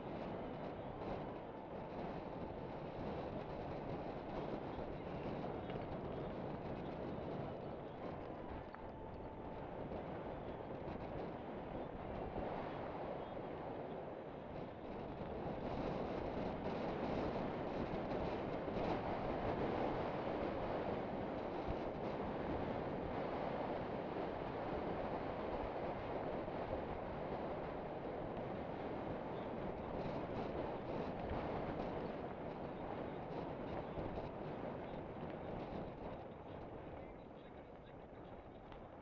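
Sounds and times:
wind buffeting microphone: 0.0s - 39.0s
bike tyres rolling on dirt: 13.4s - 39.0s.

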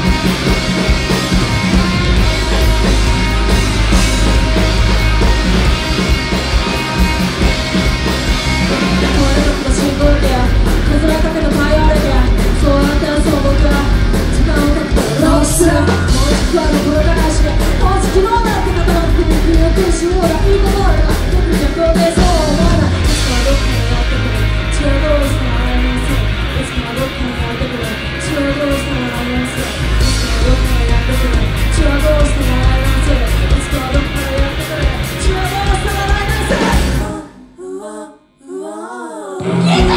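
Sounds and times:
distorted electric guitar: 0.0s - 37.3s, 39.4s - 39.9s
drums: 0.0s - 37.6s, 39.3s - 39.9s
lead vocal singing: 8.6s - 39.9s.

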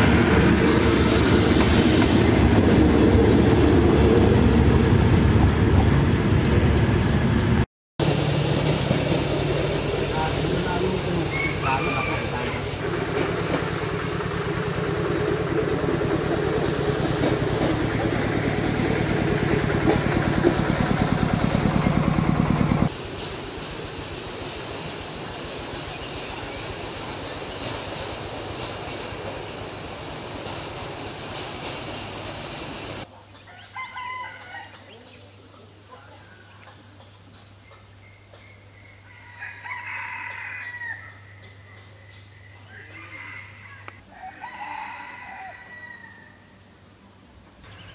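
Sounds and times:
loud noise with low hum: 0.0s - 29.4s
rooster crowing: 11.2s - 12.8s, 33.5s - 35.0s, 39.0s - 41.5s, 42.4s - 46.5s
hiss: 22.9s - 33.0s.

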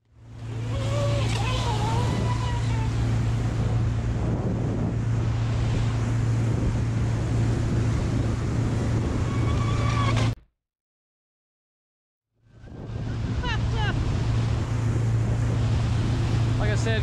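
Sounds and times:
motorboat engine drone: 0.0s - 10.4s, 12.3s - 17.0s
water rushing past hull: 0.1s - 10.4s, 12.4s - 17.0s
wind buffeting microphone: 0.2s - 10.4s, 12.4s - 17.0s.

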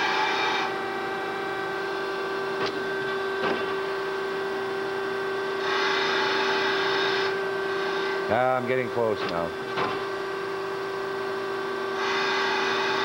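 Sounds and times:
grinder motor hum: 0.0s - 13.0s.

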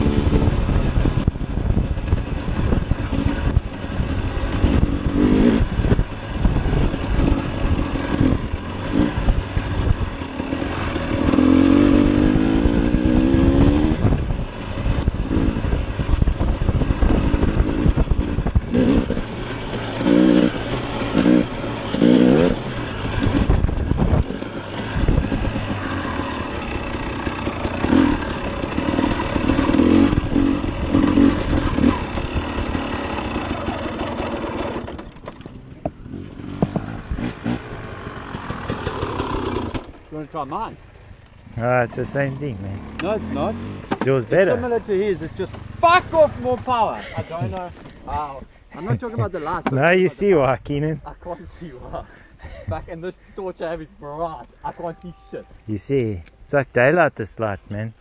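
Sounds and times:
dirt bike engine revving: 0.0s - 40.8s, 41.4s - 52.2s
heavy low rumble: 11.0s - 38.8s.

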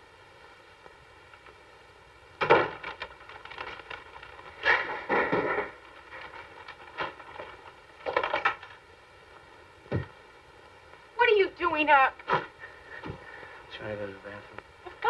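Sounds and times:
paper bag crinkling: 2.4s - 8.8s.

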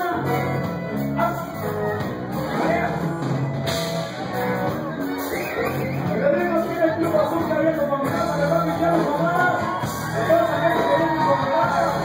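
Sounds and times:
man singing: 0.0s - 1.8s, 6.0s - 12.0s
live band music: 0.0s - 12.0s.

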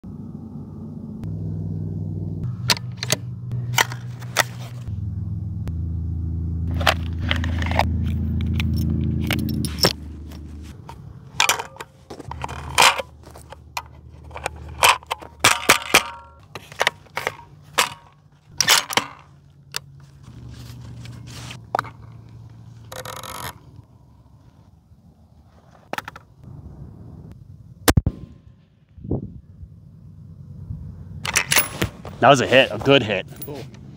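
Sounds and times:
low steady hum: 0.0s - 25.7s.

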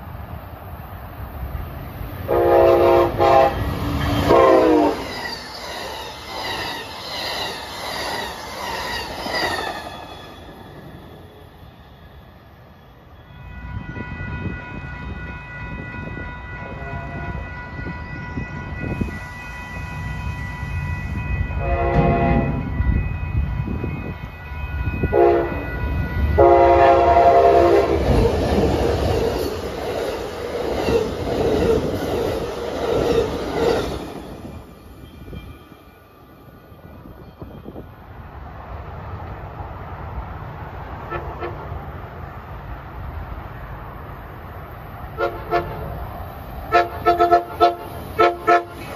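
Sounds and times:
train rumbling past: 0.0s - 48.9s
train horn blasts: 2.3s - 5.0s, 13.2s - 28.1s, 41.1s - 41.8s, 45.2s - 46.0s, 46.7s - 48.9s
crossing bell ringing: 10.3s - 27.8s, 34.3s - 38.1s.

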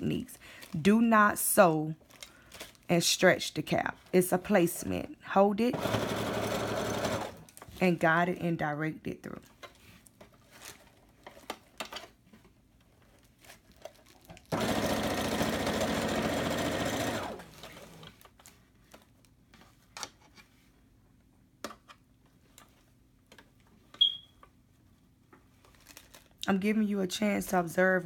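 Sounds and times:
sewing machine stitching: 5.7s - 7.4s, 14.5s - 18.1s
short high beep: 24.0s - 24.3s.

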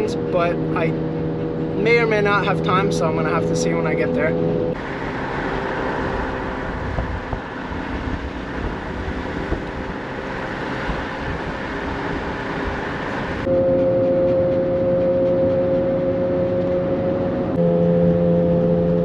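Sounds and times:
road noise: 0.0s - 19.0s
wind rushing through car window: 4.2s - 13.5s.

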